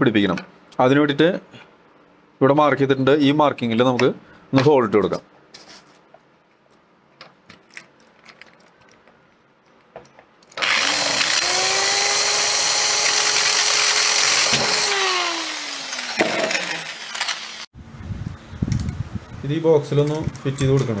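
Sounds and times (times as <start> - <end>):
electric drill whining: 10.6 - 17.7.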